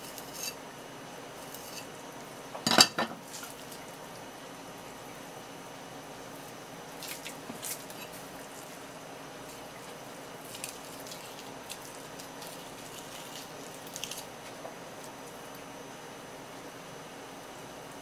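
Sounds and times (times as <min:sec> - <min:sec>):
room hum: 0:00.0 - 0:18.0.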